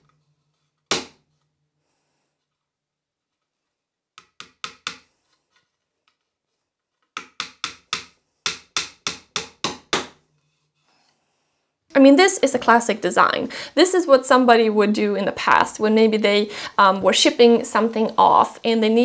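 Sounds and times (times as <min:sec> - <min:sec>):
hammer tapping a nail into wood: 0:04.2 - 0:05.0, 0:07.2 - 0:10.2.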